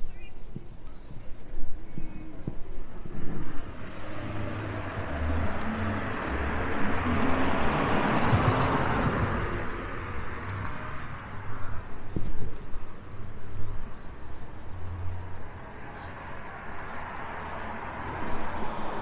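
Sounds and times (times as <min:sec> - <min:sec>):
car driving past: 0:03.4 - 0:10.8.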